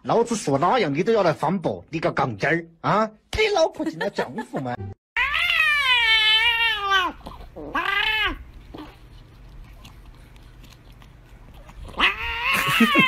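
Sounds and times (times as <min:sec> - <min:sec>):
cat meowing: 0:05.2 - 0:08.4, 0:11.9 - 0:13.0.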